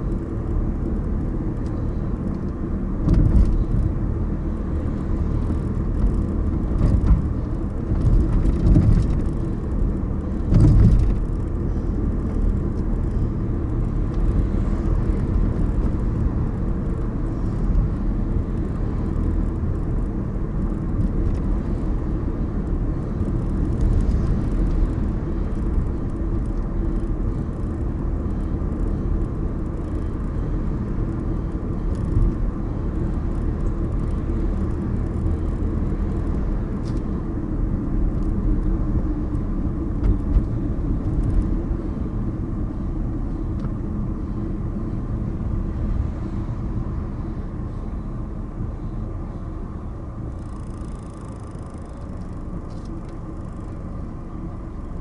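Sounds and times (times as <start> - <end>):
car road and engine rumble: 0.0 - 55.0.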